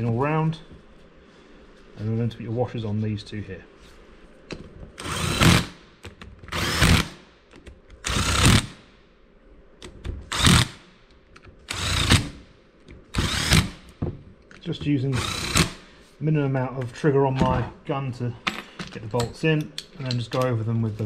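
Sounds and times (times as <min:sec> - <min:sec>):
cordless power driver bursts: 0:06.5 - 0:07.2, 0:11.7 - 0:12.4, 0:13.1 - 0:13.8, 0:15.2 - 0:15.8.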